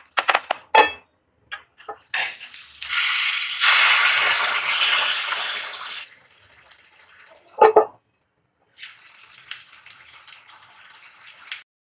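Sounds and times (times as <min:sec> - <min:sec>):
curry sizzling in a pan: 0:02.0 - 0:07.4, 0:08.7 - 0:11.6.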